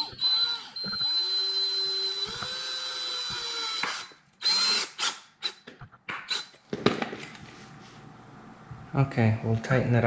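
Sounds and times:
short drill trigger bursts: 0.0s - 5.6s
drill driving screw: 0.0s - 5.7s, 6.3s - 6.6s.

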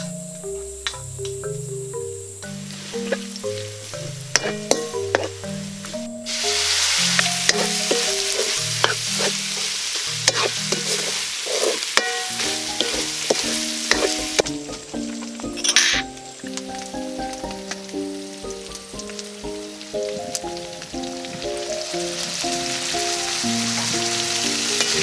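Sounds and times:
background music with plucked notes: 0.0s - 11.3s, 12.0s - 25.0s
food sizzling in hot oil: 2.4s - 25.0s
spatulas scraping a wok: 4.0s - 16.1s.

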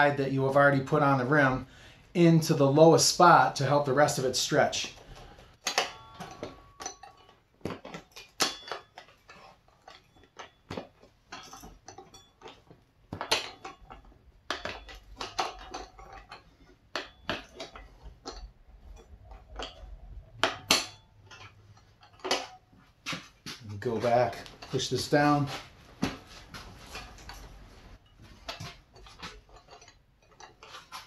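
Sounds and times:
tire iron clinking on rim: 5.6s - 25.2s, 26.8s - 31.0s.

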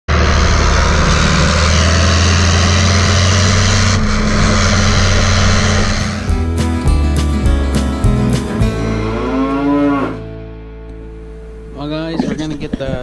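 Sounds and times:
tractor diesel engine running: 0.1s - 8.8s.

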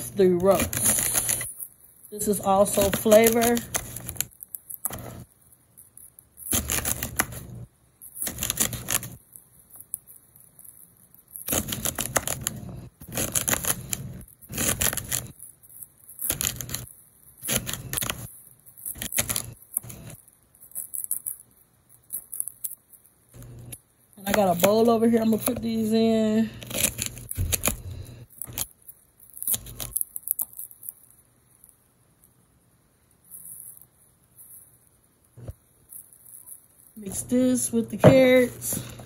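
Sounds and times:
knife chopping celery: 6.4s - 7.5s, 11.4s - 15.3s.

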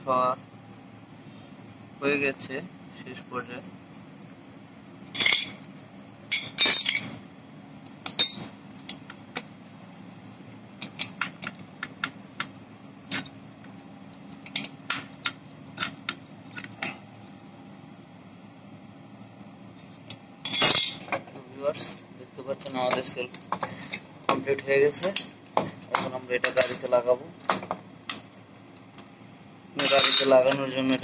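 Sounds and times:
spanner clattering: 5.1s - 5.7s, 6.3s - 7.3s, 8.0s - 9.2s, 20.1s - 21.3s, 29.8s - 31.0s.

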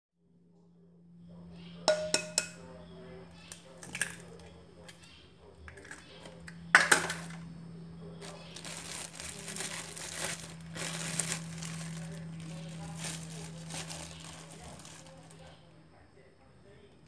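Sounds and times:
steady low hum: 0.2s - 17.0s
plastic bag crinkling: 8.2s - 15.5s.

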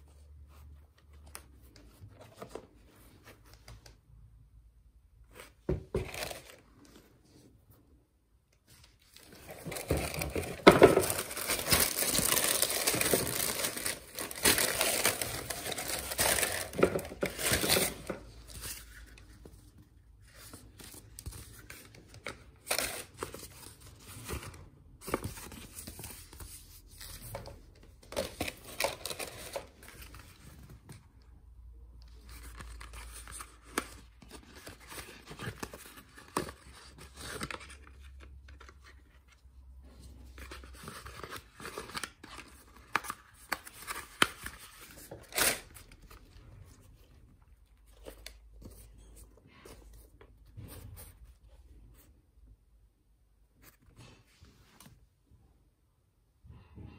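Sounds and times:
cardboard and paper rustling: 5.3s - 7.8s, 8.6s - 31.3s, 32.0s - 52.1s
tissue paper crinkling: 11.0s - 19.0s.

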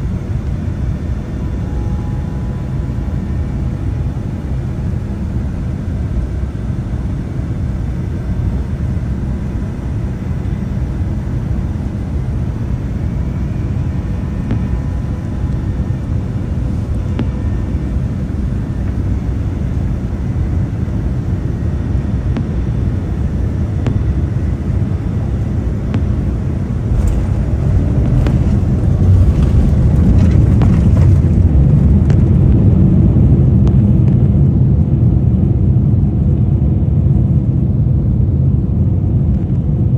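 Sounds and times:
airliner cabin engine rumble: 0.0s - 39.9s.

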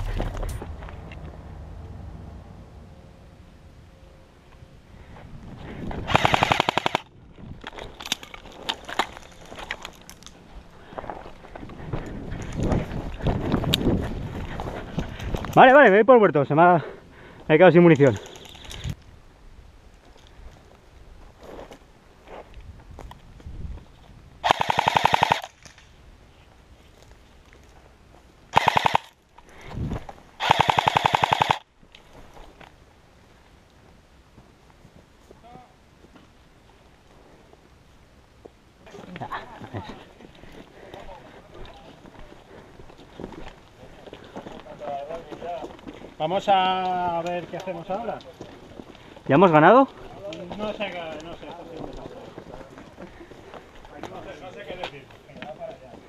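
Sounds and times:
airsoft rifle burst: 6.1s - 7.1s, 24.4s - 25.7s, 28.5s - 29.1s, 30.4s - 31.6s.

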